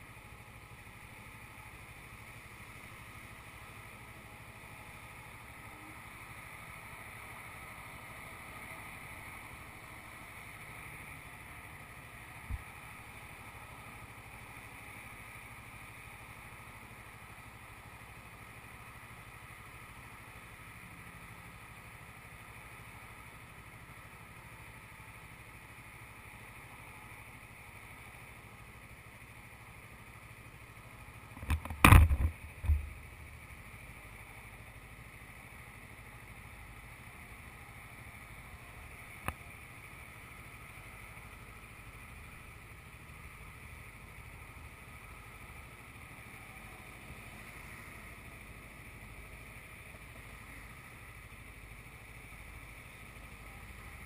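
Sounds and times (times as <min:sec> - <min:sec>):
motorcycle engine idling: 0:00.0 - 0:54.0
thumps: 0:31.4 - 0:33.0.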